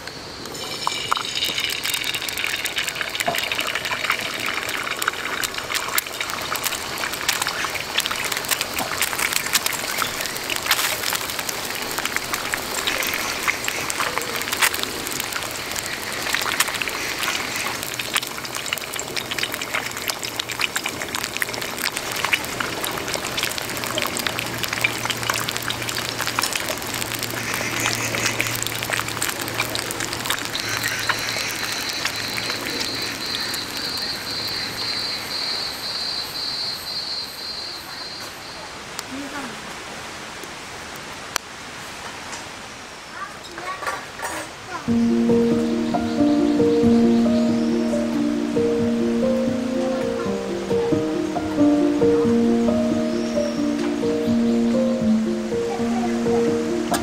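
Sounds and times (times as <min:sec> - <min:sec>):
egg sizzling in oil: 0:00.4 - 0:36.4.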